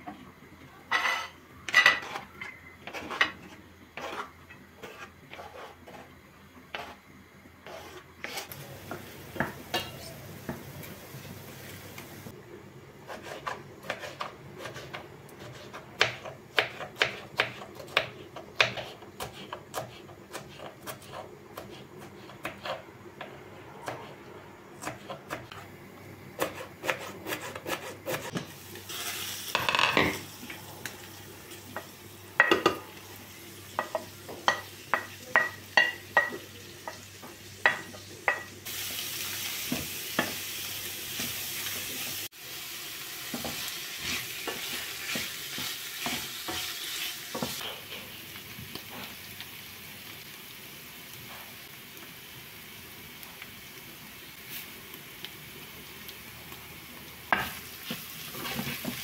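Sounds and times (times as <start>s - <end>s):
wooden spatula scraping pan: 0.9s - 7.0s, 7.6s - 8.6s, 43.3s - 47.8s, 57.8s - 59.0s
food sizzling in a pan: 0.9s - 12.4s, 24.8s - 59.0s.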